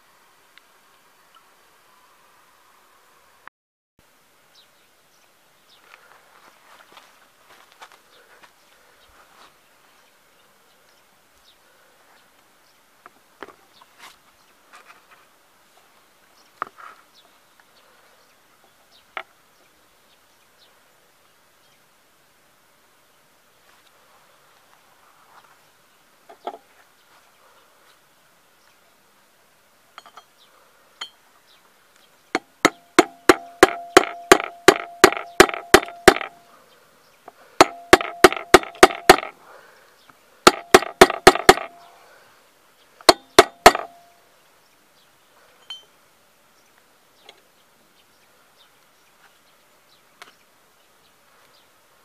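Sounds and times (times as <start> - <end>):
hammer striking metal: 32.4 - 36.4, 37.6 - 39.3, 40.5 - 41.8, 43.1 - 44.0.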